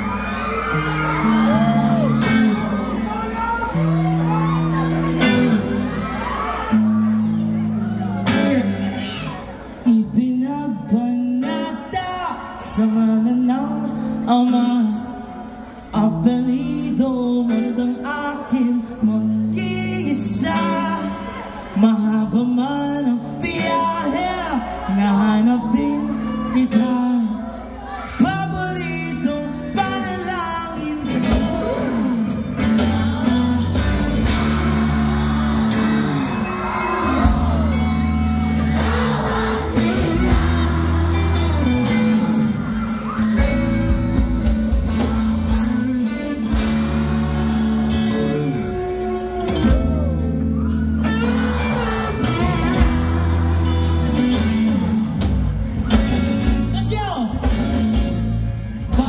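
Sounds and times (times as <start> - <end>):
electric guitars: 0.0 - 10.2, 10.8 - 59.0
bass: 0.0 - 59.0
person singing lead vocal: 8.4 - 50.3, 51.0 - 56.1, 58.8 - 59.0
drum beat: 38.7 - 42.2, 52.3 - 58.2.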